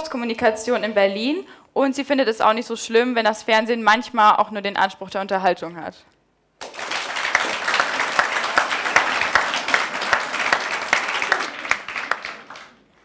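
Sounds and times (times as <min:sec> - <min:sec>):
audience applauding: 0:06.6 - 0:13.0.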